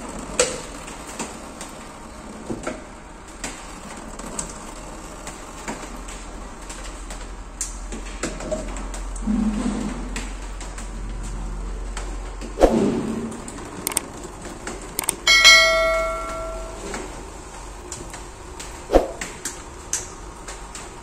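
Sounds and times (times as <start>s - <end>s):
button click: 15.0s - 16.9s
bright bell ding: 15.0s - 17.1s.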